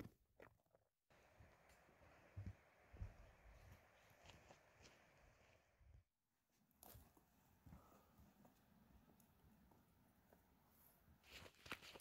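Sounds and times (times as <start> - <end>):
footsteps on gritty trail: 2.4 - 5.5.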